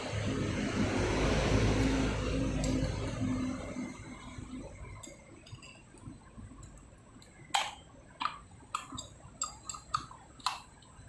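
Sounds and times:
small hard parts clicking: 0:04.9 - 0:11.0.

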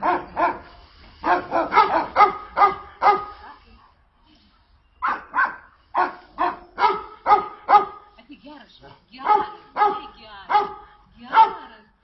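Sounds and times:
dog barking: 0:00.0 - 0:03.6, 0:05.0 - 0:08.1, 0:09.2 - 0:11.7.

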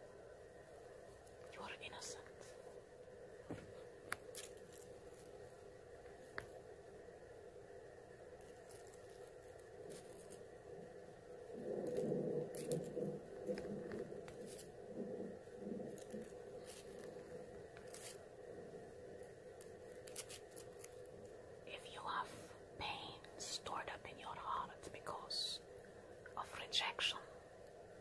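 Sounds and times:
scratching and rustling on microphone: 0:03.5 - 0:06.6, 0:08.4 - 0:22.5.

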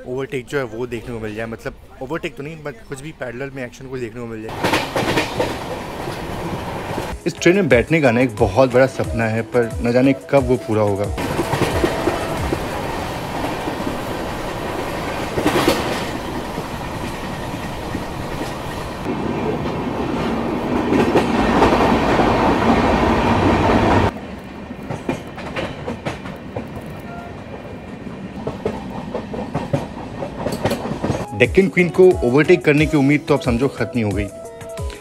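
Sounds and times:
train wheels rushing on rails: 0:04.5 - 0:07.2, 0:11.2 - 0:31.3
wheels clicking over rail joints: 0:04.5 - 0:07.2, 0:11.2 - 0:19.1, 0:24.1 - 0:31.3.

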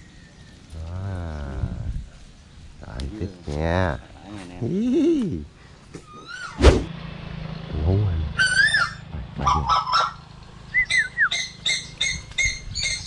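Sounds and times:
bird honk-like squawks: 0:08.4 - 0:10.2.

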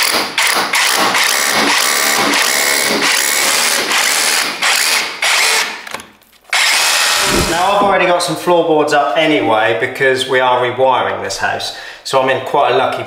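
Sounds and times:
cordless drill boring: 0:00.4 - 0:07.8.

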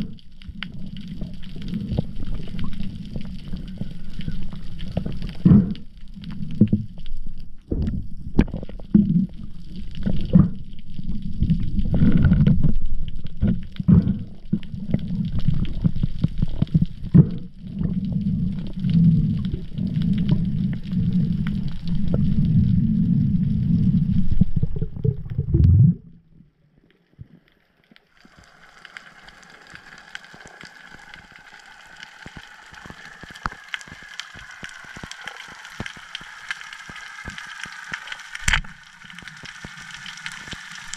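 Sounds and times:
underwater crackling hiss: 0:00.0 - 0:25.4, 0:28.0 - 0:40.9
water sloshing and gurgling: 0:04.5 - 0:27.5.

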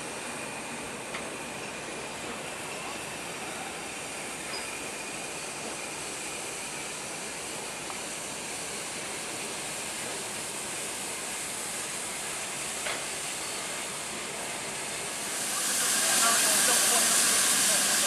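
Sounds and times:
steam hissing from locomotive: 0:00.0 - 0:18.0.

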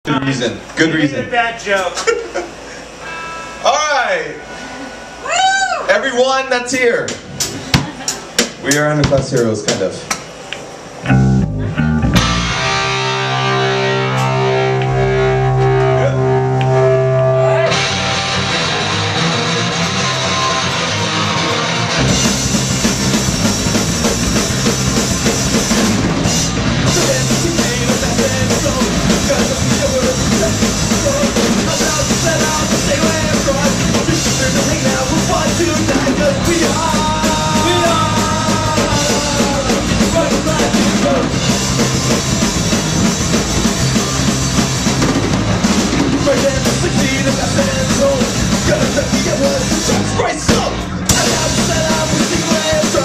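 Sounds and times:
drum kit: 0:06.9 - 0:53.0
electric guitar: 0:10.6 - 0:53.0
bass guitar: 0:11.0 - 0:53.0.

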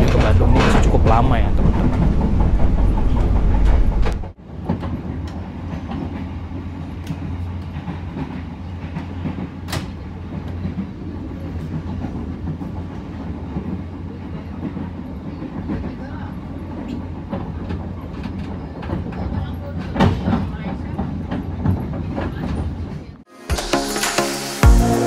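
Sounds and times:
heavier deep rumble: 0:00.0 - 0:04.4
wheels clicking on rails: 0:00.0 - 0:23.1
train running low rumble: 0:00.0 - 0:23.2.

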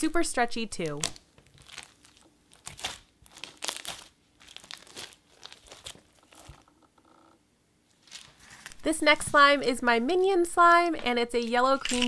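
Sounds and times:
slime clicking and crackling: 0:00.9 - 0:06.7.

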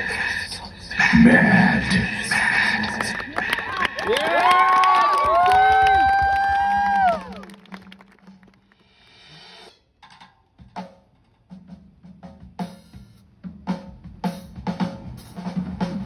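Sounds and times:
drum and cymbal hits: 0:08.7 - 0:16.0.

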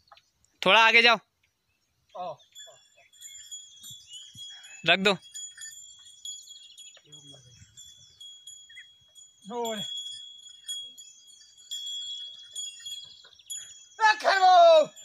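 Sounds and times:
chirps: 0:00.0 - 0:14.2
man shouting to oxen: 0:14.0 - 0:15.0.

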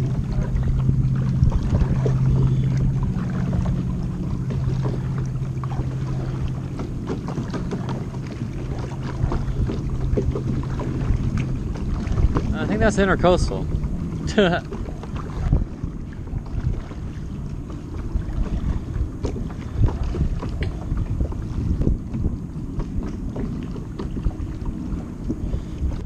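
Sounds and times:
paddle splashes and drips: 0:00.0 - 0:26.0
steady low hum: 0:00.0 - 0:26.0.

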